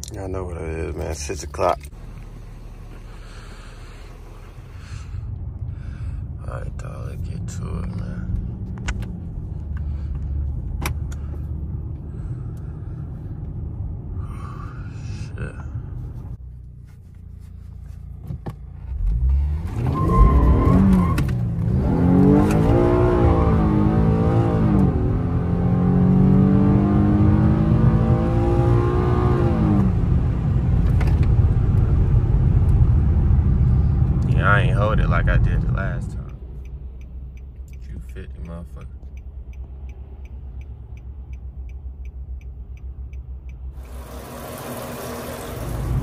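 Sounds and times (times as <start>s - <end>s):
car engine revving through gears: 18.9s - 32.8s, 43.8s - 46.0s.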